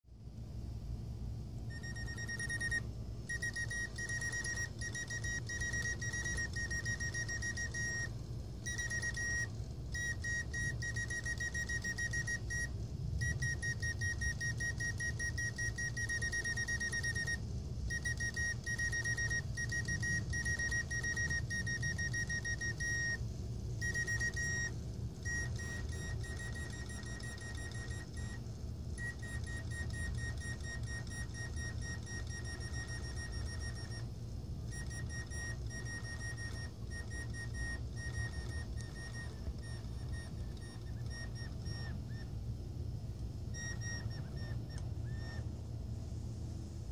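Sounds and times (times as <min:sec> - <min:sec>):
mechanical bird whistle warbling: 0:43.6 - 0:45.4.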